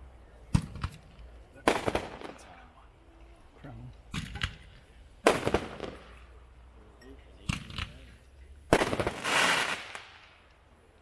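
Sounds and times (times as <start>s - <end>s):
dense crackling hiss: 0.0s - 11.0s
firework shots with crackling pops: 0.5s - 2.7s, 4.1s - 6.4s, 8.7s - 10.6s.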